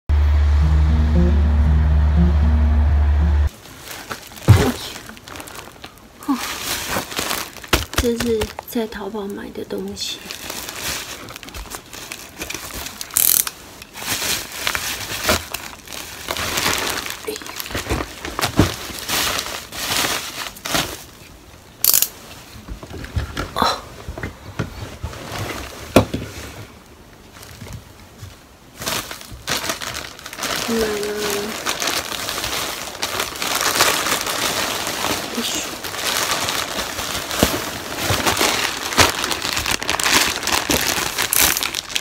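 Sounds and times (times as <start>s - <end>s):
plastic sack tearing: 3.5s - 8.9s, 10.2s - 22.2s, 28.7s - 42.0s
plastic bags crinkling and rustling: 3.5s - 42.0s.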